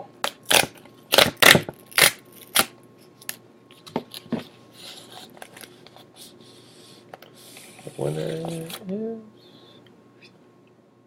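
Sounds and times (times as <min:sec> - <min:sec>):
packaging being torn open: 0:00.2 - 0:03.4.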